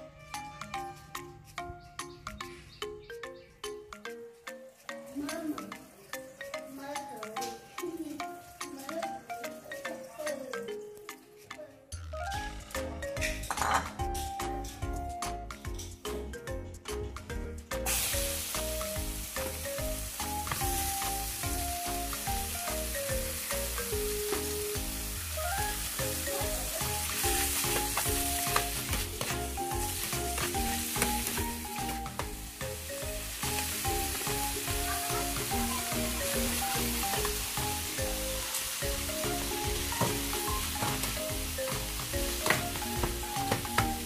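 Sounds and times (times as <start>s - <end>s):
background music: 0.0s - 44.0s
meat sizzling in frying pan: 17.8s - 44.0s.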